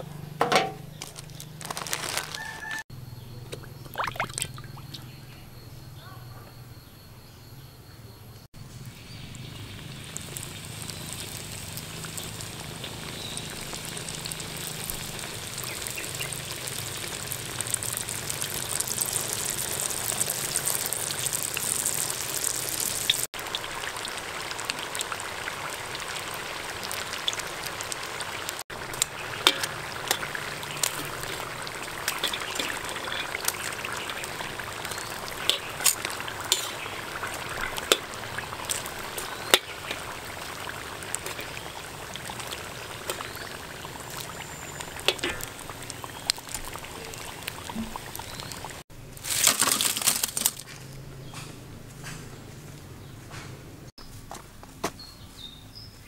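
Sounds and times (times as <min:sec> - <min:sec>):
oil crackling and snapping: 0:00.4 - 0:02.8, 0:08.9 - 0:50.7
food deep-frying in hot oil: 0:08.5 - 0:50.7.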